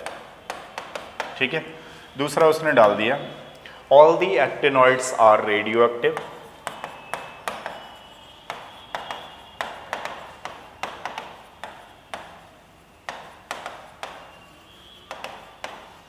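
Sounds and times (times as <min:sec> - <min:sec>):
pen tapping on writing board: 0:00.0 - 0:01.5, 0:06.0 - 0:16.0
faint pen squeak: 0:06.1 - 0:13.0, 0:13.8 - 0:16.0.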